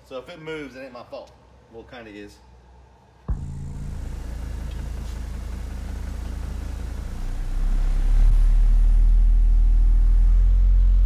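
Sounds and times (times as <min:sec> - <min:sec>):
subwoofer bass sweep: 0:03.3 - 0:11.0.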